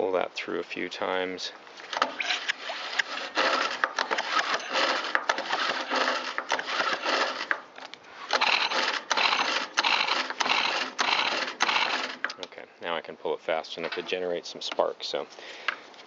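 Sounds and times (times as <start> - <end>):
engine turning over with rattling whir: 1.9 - 7.7, 8.3 - 12.4
recoil starter pulls: 2.0 - 7.6, 8.3 - 12.4.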